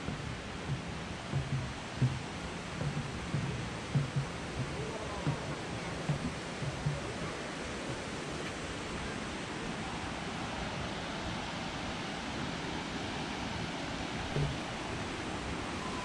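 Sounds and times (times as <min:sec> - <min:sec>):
creek water rushing: 0:00.0 - 0:16.0
soft thump: 0:00.1 - 0:02.2, 0:02.8 - 0:07.2, 0:14.3 - 0:14.8.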